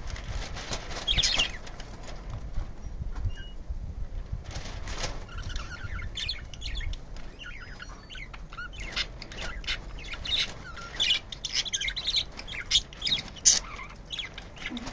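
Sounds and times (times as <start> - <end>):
budgerigars chirping and chattering: 1.0 - 1.7, 5.3 - 14.9.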